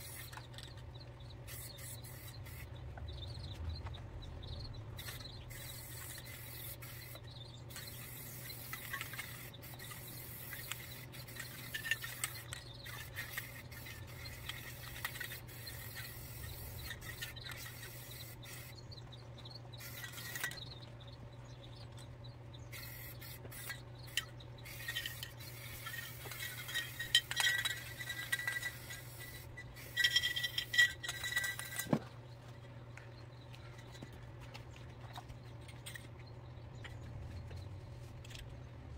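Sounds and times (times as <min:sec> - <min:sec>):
spray can hissing: 0:00.0 - 0:00.4, 0:01.5 - 0:02.7, 0:05.0 - 0:18.7, 0:19.8 - 0:20.5, 0:22.7 - 0:30.8.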